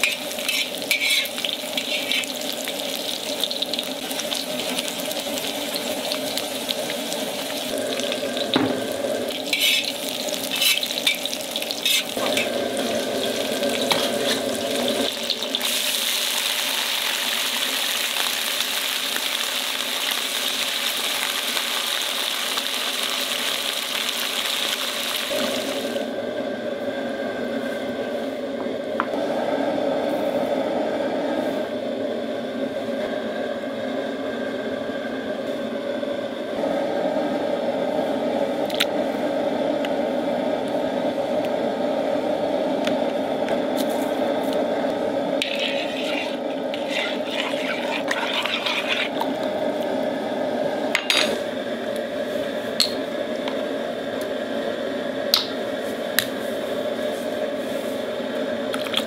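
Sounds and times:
bubbling liquid: 0:45.4 - 0:49.8.

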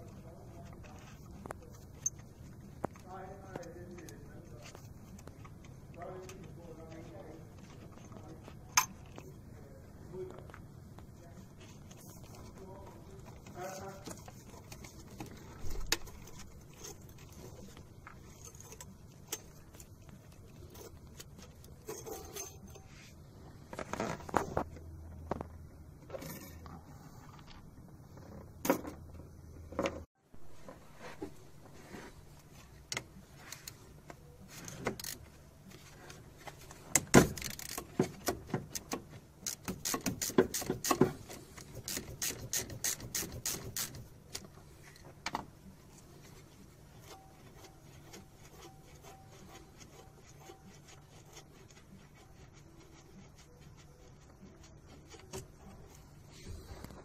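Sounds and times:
metal tool clicks and scrapes: 0:07.9 - 0:09.2, 0:14.0 - 0:23.0, 0:37.3 - 0:44.5
ratchet wrench clicking: 0:39.4 - 0:41.0, 0:41.8 - 0:44.0.

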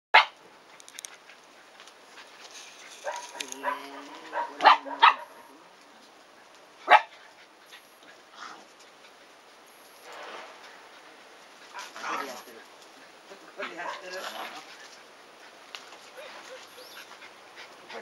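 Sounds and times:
puppies barking and yipping: 0:02.2 - 0:05.5, 0:13.1 - 0:18.0.

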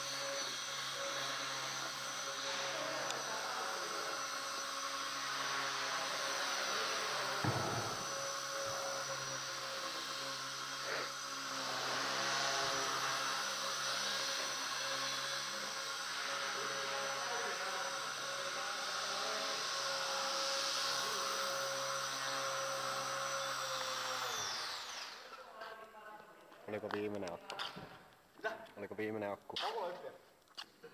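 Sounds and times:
rc helicopter rotor whine: 0:00.0 - 0:25.8
low thump: 0:07.4 - 0:08.1.

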